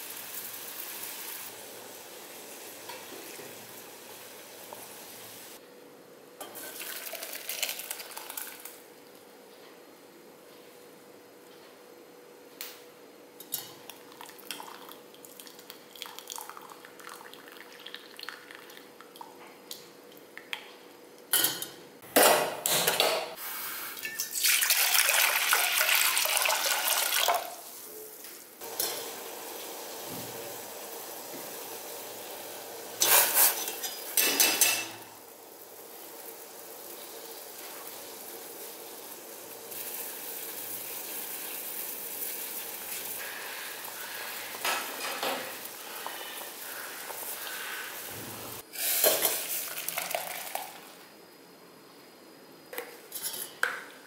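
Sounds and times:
pot bubbling hiss: 6.5s - 8.9s, 13.8s - 20.7s, 23.3s - 52.0s
water poured into pot: 6.6s - 8.8s, 13.9s - 19.3s, 24.0s - 27.7s, 48.8s - 51.0s
steel kitchenware clattering: 33.0s - 35.0s, 53.1s - 53.7s.

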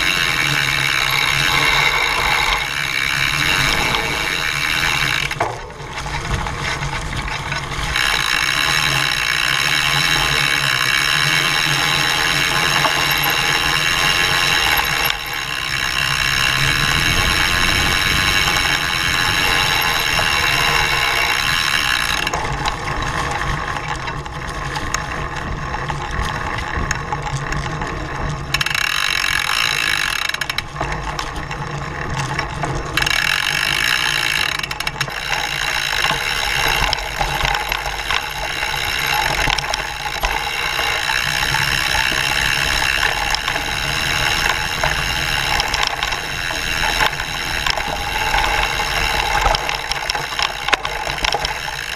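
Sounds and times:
bike chain rattle: 0.0s - 51.9s.

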